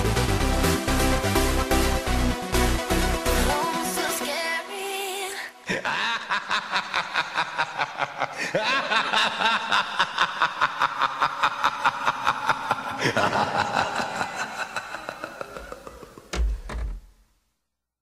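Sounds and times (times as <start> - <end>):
cackling laughter: 5.7 - 16.4.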